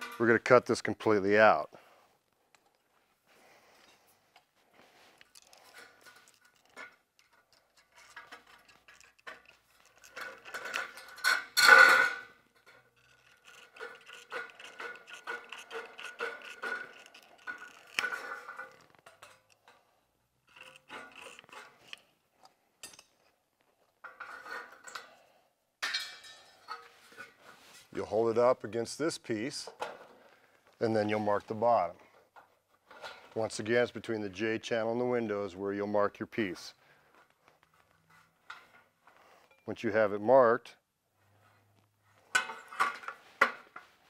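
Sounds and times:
tin snips cutting sheet metal: 0:13.4 - 0:18.2.

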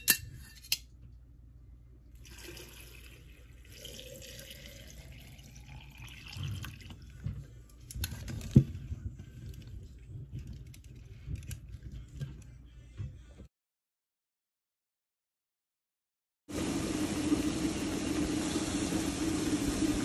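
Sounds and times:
liquid pouring into glass pitcher: 0:02.2 - 0:07.2.

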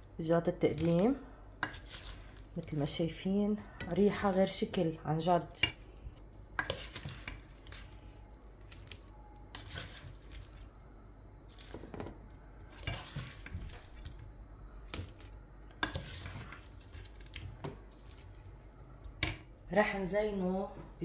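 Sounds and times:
utensil scraping metal frying pan: 0:15.8 - 0:16.6.

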